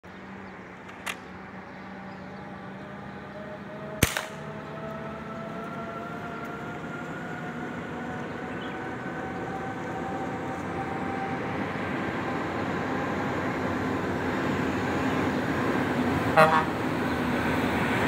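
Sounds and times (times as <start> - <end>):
rifle shot: 4.0 - 4.4.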